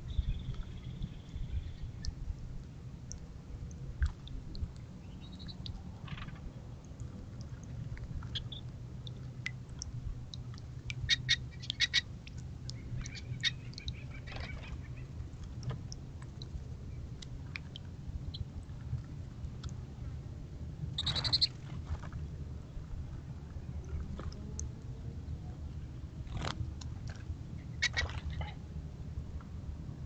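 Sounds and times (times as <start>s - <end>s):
steady low hum: 0.0s - 30.0s
finches chirping: 21.0s - 21.5s.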